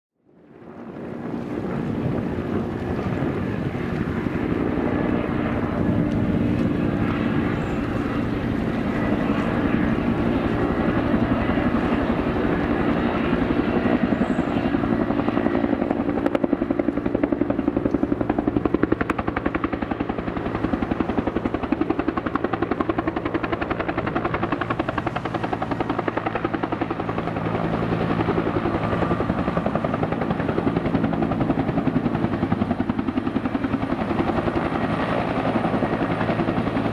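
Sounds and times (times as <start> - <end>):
helicopter rotor beating: 0.4 - 36.9
turbine hum: 0.4 - 36.9.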